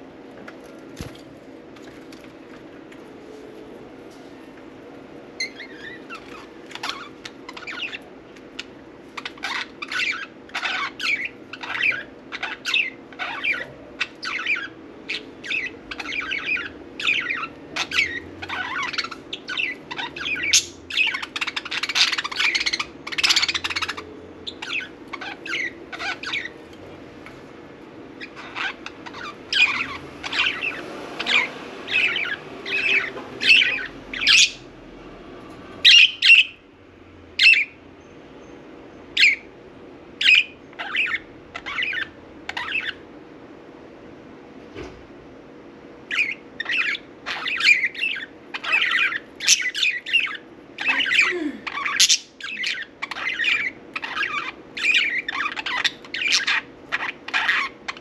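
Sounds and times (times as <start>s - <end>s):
budgerigars chirping: 5.4s - 26.9s, 28.2s - 34.7s, 35.8s - 36.6s, 37.4s - 37.8s, 39.1s - 39.5s, 40.2s - 43.1s, 46.0s - 58.0s.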